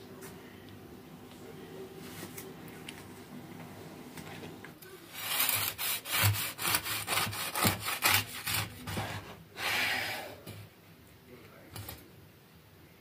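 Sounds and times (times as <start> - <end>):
knife sawing through cake crust: 5.1 - 10.1.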